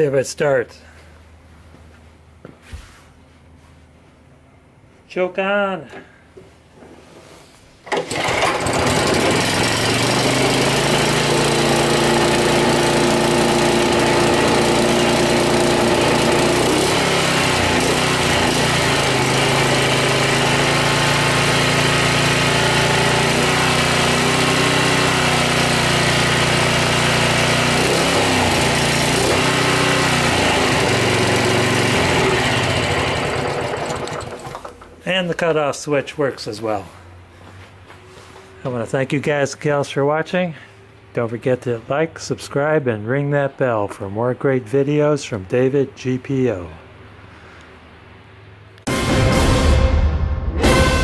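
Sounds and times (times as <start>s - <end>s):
lawnmower engine pull-started: 7.8s - 35.1s.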